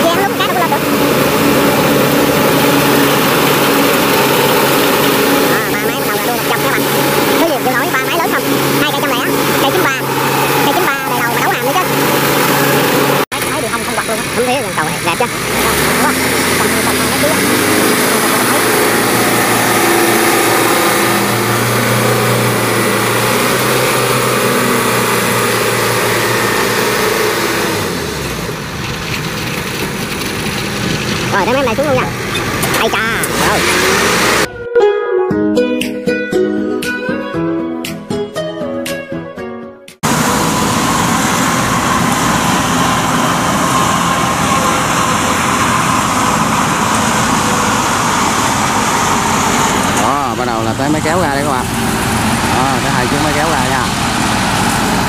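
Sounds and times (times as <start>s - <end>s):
combine harvester engine running: 0.0s - 34.5s, 40.0s - 55.0s.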